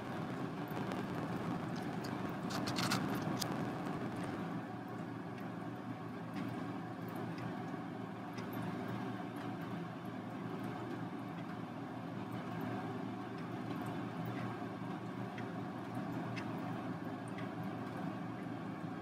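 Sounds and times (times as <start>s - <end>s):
low background hum: 0.0s - 19.0s
faint light ticks: 14.3s - 14.6s.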